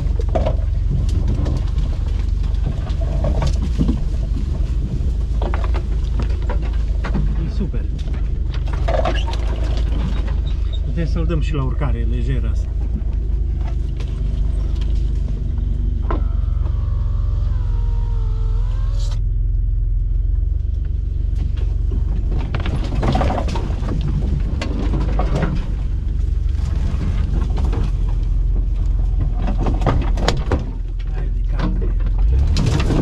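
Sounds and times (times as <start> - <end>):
branches scraping against vehicle: 0.0 - 33.0
off-road vehicle engine under load: 0.0 - 33.0
wavering whine: 10.5 - 29.0.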